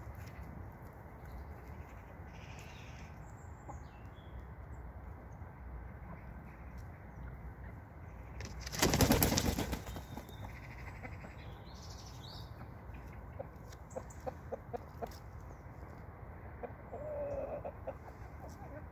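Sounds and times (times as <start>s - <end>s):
chicken flapping wings: 8.4s - 10.4s.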